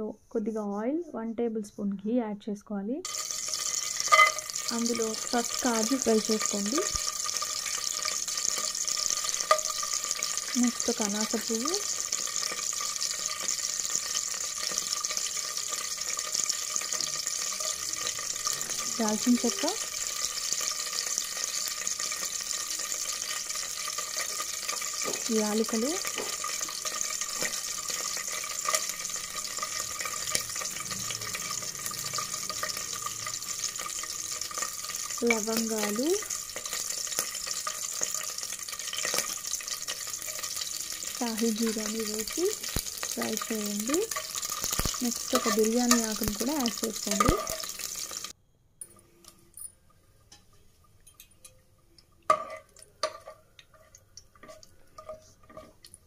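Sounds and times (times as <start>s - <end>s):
spices sizzling in hot oil: 2.8s - 56.0s
crackles and pops: 3.0s - 48.4s
ladle clinking on metal pot: 4.0s - 4.5s, 50.3s - 51.6s, 52.3s - 55.8s.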